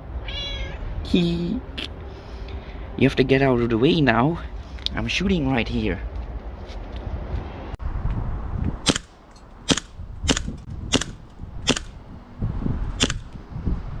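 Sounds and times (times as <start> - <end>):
bb pistol firing sharp pops: 8.8 - 9.1, 9.7 - 12.0, 13.0 - 13.3.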